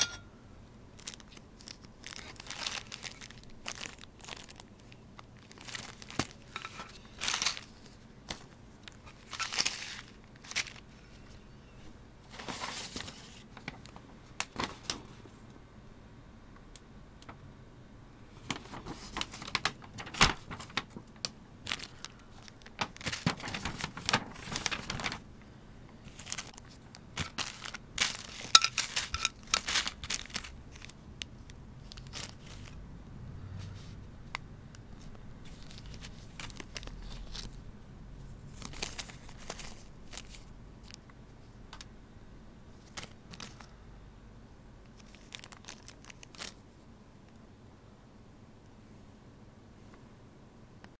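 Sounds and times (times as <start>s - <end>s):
plastic bags crinkling: 1.0s - 10.9s, 18.5s - 25.3s, 26.0s - 32.8s, 35.0s - 37.6s, 38.5s - 41.1s, 42.8s - 43.7s, 45.0s - 46.6s.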